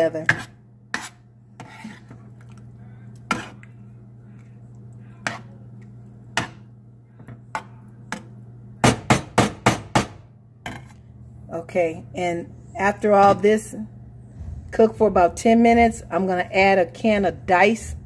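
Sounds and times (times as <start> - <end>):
spoon stirring thick sauce: 0.0 - 8.5.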